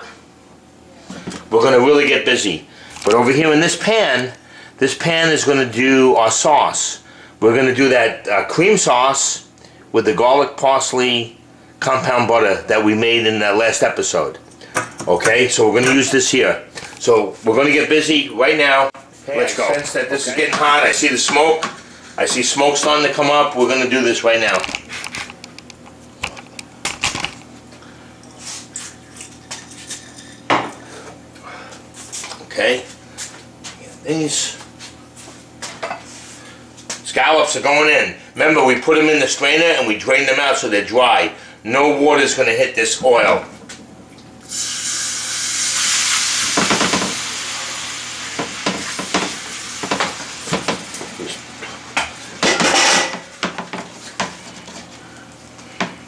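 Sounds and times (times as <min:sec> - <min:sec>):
scallops sizzling in hot oil: 0:44.4 - 0:52.0
pans and utensils clinking: 0:52.4 - 0:54.6.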